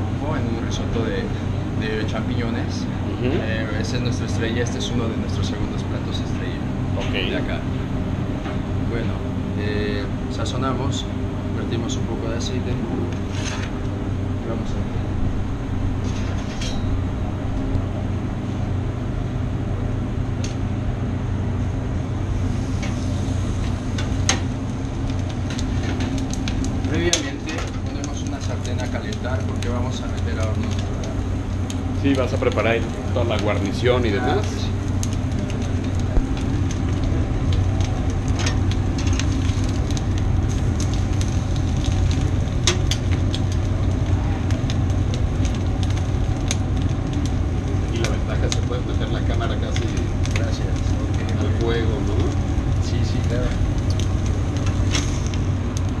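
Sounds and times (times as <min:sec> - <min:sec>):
meat sizzling on a grill: 0:00.0 - 0:17.9, 0:20.7 - 0:56.0
extraction hood fan hum: 0:00.0 - 0:56.0
metal tongs clicking on grill: 0:42.6 - 0:43.1.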